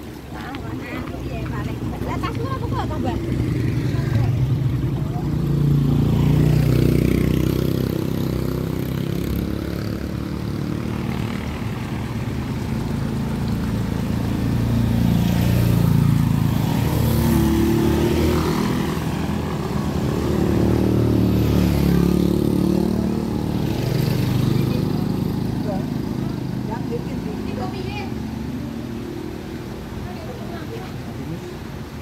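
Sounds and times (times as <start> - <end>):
motorcycles riding past: 0.0 - 32.0.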